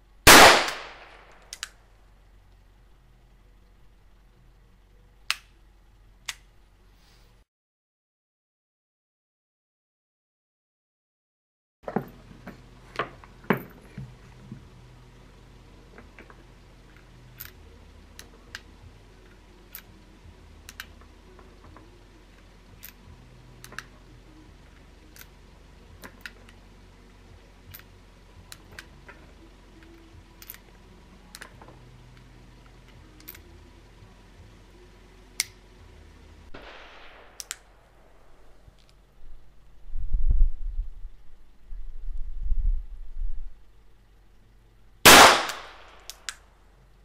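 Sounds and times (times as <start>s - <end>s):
revolver cartridges loading clicks: 29.8s - 30.7s, 45.4s - 46.4s.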